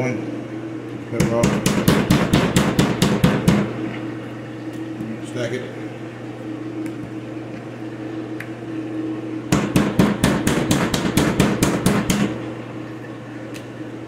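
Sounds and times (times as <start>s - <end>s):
steady hum: 0.0s - 14.0s
knife chopping on cutting board: 1.2s - 3.7s, 9.6s - 12.3s.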